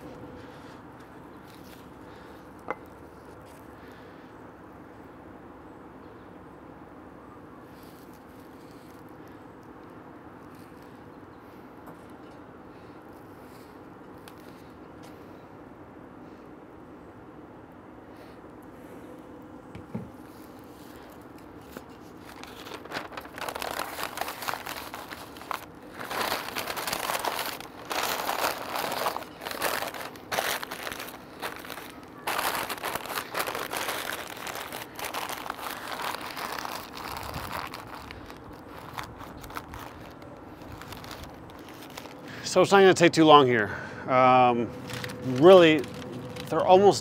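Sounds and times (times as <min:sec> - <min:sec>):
paper crinkling and rustling: 0:20.2 - 0:42.3, 0:44.7 - 0:47.0.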